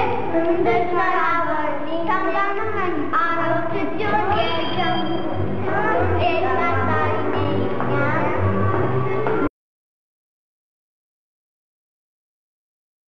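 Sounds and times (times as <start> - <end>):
children singing: 0.0 - 9.5
music: 0.0 - 9.5.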